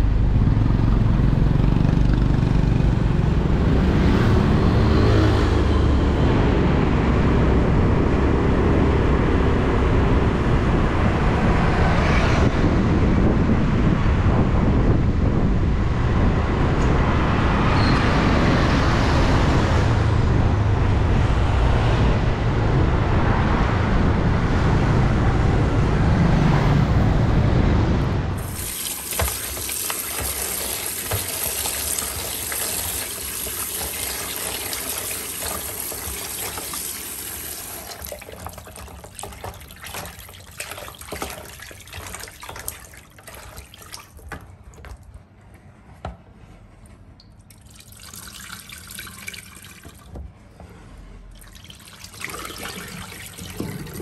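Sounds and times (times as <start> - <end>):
road noise: 0.0 - 54.0
water splashing in a basin: 3.6 - 5.9, 28.4 - 45.2, 47.2 - 50.2, 51.3 - 54.0
wind rushing over microphone: 6.3 - 28.4.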